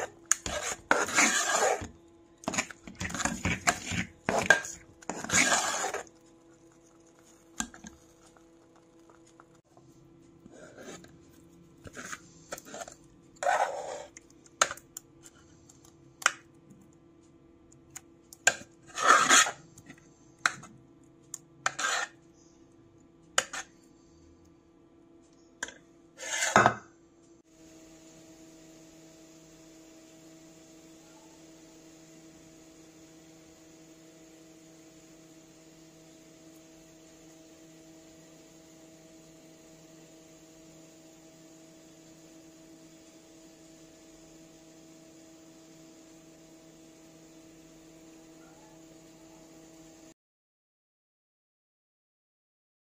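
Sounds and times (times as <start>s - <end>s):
metal spoon scraping a pot: 0.0s - 9.2s, 10.4s - 15.4s, 18.5s - 20.7s, 21.6s - 22.2s, 23.4s - 23.8s, 25.6s - 26.8s.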